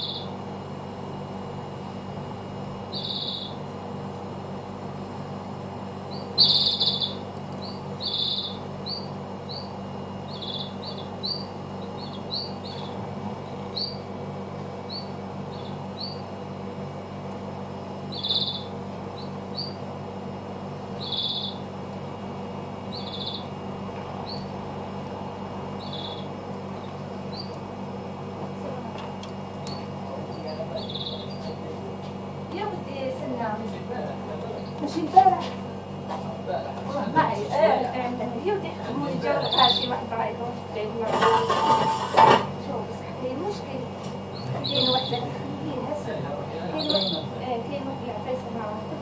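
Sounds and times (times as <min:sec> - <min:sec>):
small bird chirping: 0:00.0 - 0:00.4, 0:02.9 - 0:03.6, 0:06.0 - 0:14.1, 0:14.8 - 0:16.3, 0:18.0 - 0:19.8, 0:21.0 - 0:21.7, 0:22.8 - 0:23.6, 0:24.2 - 0:24.6, 0:25.8 - 0:27.6, 0:29.6 - 0:31.6, 0:34.6 - 0:34.8, 0:39.4 - 0:40.0, 0:44.3 - 0:45.3, 0:46.7 - 0:47.2
steady low hum: 0:00.0 - 0:49.0.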